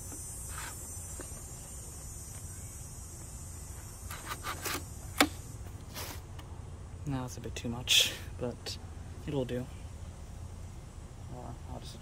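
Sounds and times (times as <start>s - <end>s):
high insect-like trill: 0.0s - 5.7s.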